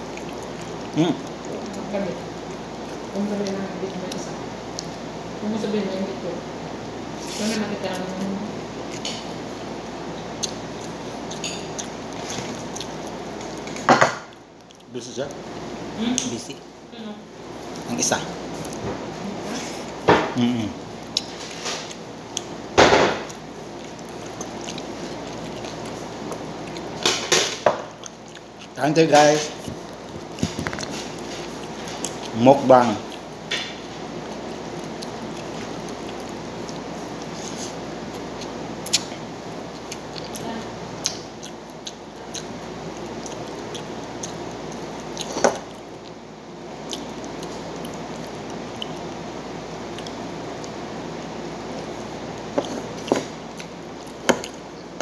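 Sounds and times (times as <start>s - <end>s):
person chewing: 0.0s - 5.2s, 6.7s - 16.6s, 17.4s - 55.0s.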